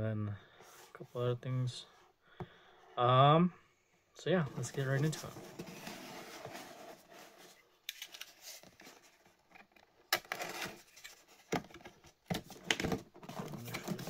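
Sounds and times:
cardboard scraping and rustling: 0:04.6 - 0:09.4, 0:10.3 - 0:14.0.

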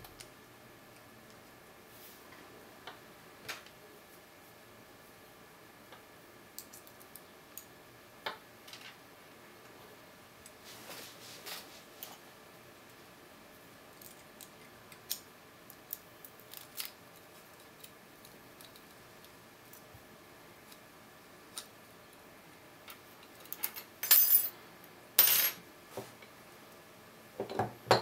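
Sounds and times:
tools clattering on wooden table: 0:25.2 - 0:25.6.

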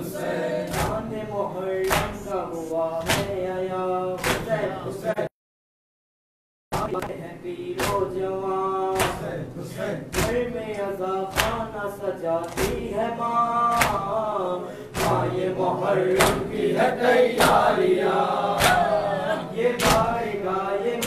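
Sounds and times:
men chanting: 0:00.0 - 0:05.3, 0:06.8 - 0:21.0
unison chest-beats: 0:00.6 - 0:01.1, 0:03.0 - 0:03.4, 0:10.0 - 0:13.0, 0:13.6 - 0:17.8, 0:18.4 - 0:19.1, 0:19.8 - 0:20.2.

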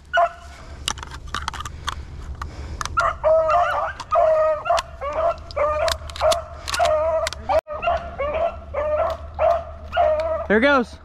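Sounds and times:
hounds yelping: 0:00.0 - 0:00.6, 0:02.9 - 0:10.8
twigs crackling underfoot: 0:00.0 - 0:10.8.

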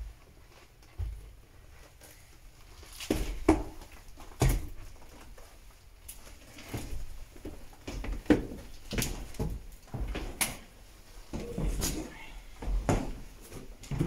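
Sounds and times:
footsteps on hard floor: 0:11.2 - 0:14.0.

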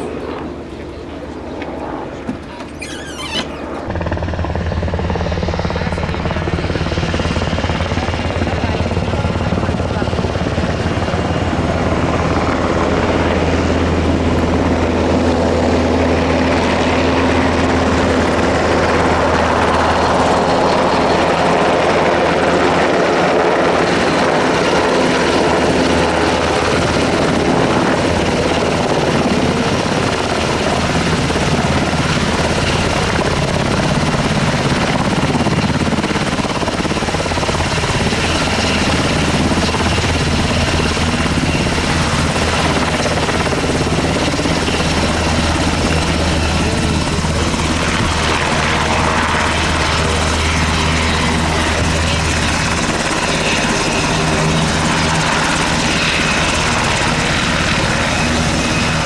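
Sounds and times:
helicopter rotor beat: 0:00.0 - 0:59.0
turbine engine noise: 0:22.8 - 0:59.0.

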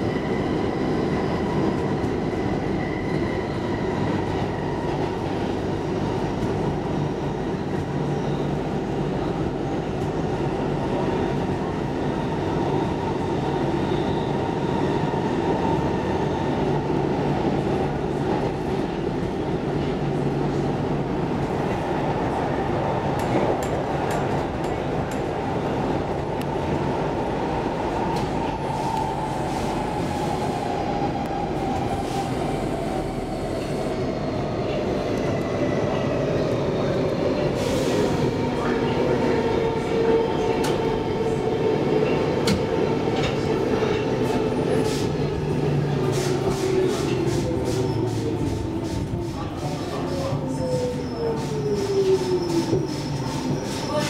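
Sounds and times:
train wheels rumbling on track: 0:00.0 - 0:54.0.

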